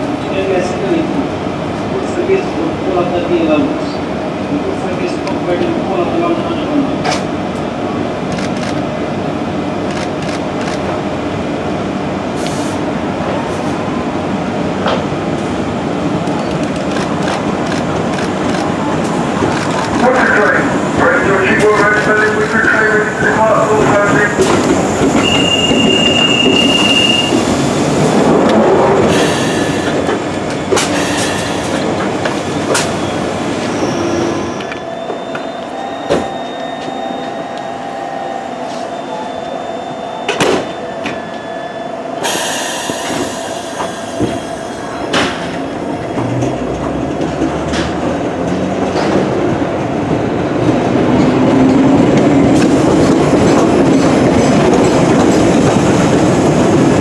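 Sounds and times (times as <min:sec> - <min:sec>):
train rumble: 0:00.0 - 0:57.0
high wheel squeal: 0:25.1 - 0:27.5, 0:33.0 - 0:44.7.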